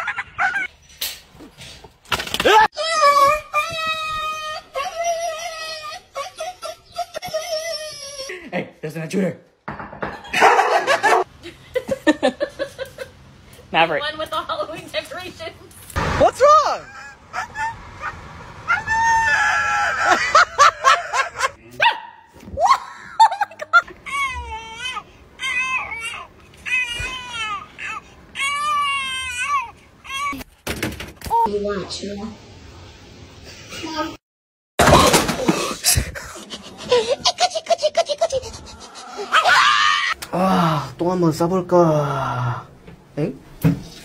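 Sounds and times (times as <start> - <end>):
person laughing: 19.3 - 21.6, 36.0 - 39.5
dog barking: 21.8 - 22.3.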